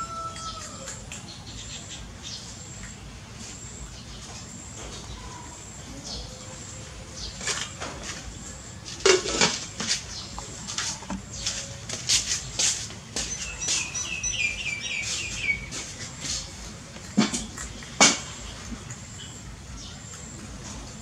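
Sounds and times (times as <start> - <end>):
small bird chirping: 13.2 - 16.6.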